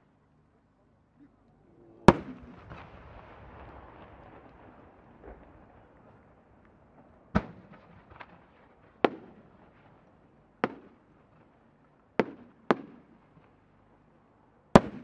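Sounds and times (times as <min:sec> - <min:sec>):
fireworks bangs: 0:02.0 - 0:10.0, 0:10.6 - 0:11.0.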